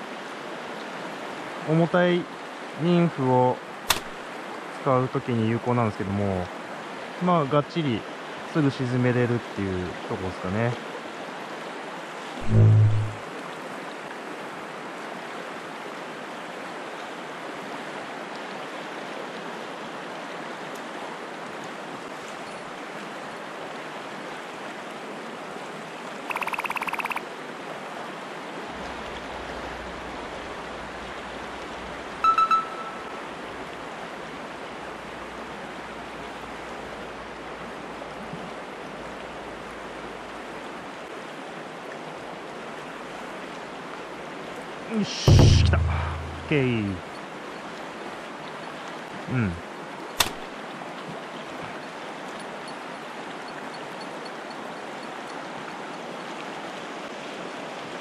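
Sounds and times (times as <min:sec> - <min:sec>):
mountain stream rushing: 0:00.0 - 0:58.0
sharp high tone: 0:12.4 - 0:13.2, 0:32.2 - 0:33.2, 0:45.1 - 0:46.8
pulsing chirp: 0:26.3 - 0:27.2.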